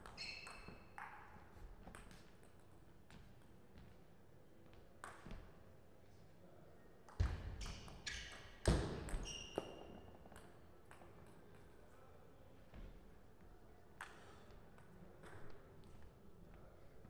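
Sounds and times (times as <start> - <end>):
sneaker squeaks: 0.0 - 1.0, 7.6 - 10.1.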